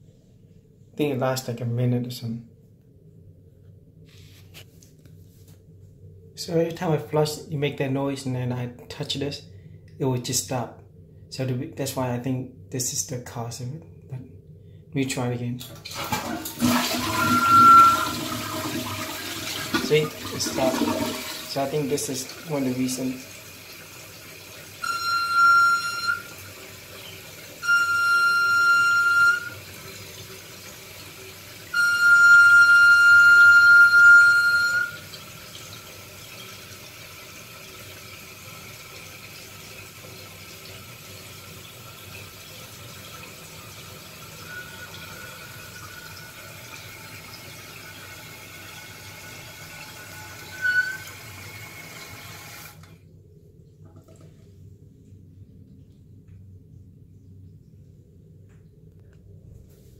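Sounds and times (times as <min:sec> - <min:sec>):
toilet tank water running: 0:15.6 - 0:53.0
fill valve high-pitched squeak: 0:16.8 - 0:18.4, 0:24.8 - 0:29.7, 0:31.7 - 0:35.2, 0:44.4 - 0:45.4, 0:49.6 - 0:51.3.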